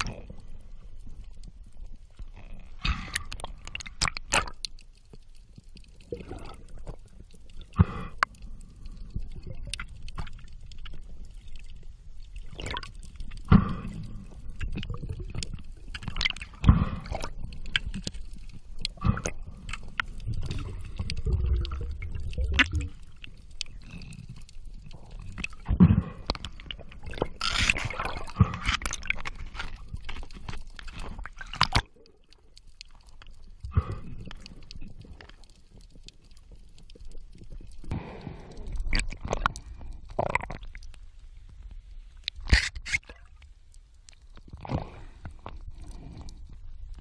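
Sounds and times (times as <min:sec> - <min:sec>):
underwater water rushing: 0:08.8 - 0:32.6.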